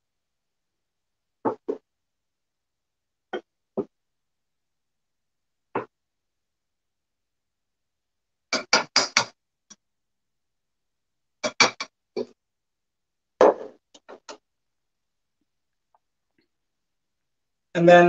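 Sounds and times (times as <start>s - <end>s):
utensils knocking on ceramic bowl: 11.4s - 11.9s.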